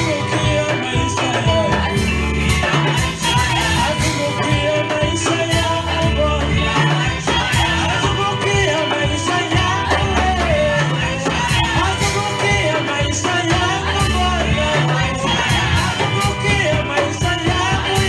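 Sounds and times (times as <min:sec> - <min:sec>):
accompaniment with beat and bass: 0:00.0 - 0:18.0
men singing into microphones: 0:00.0 - 0:18.0.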